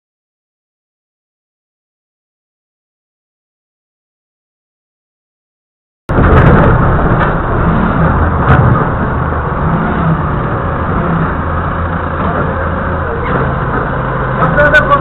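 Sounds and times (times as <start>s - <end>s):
forklift engine running: 6.1s - 15.0s.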